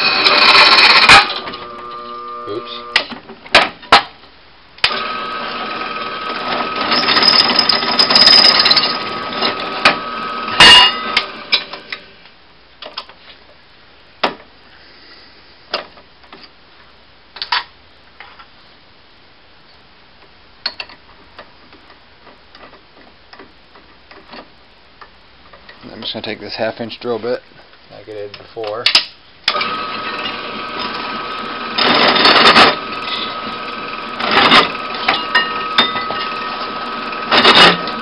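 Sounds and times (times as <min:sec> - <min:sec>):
drill press cutting steel: 0:00.0 - 0:03.1, 0:04.8 - 0:12.1, 0:29.5 - 0:38.0.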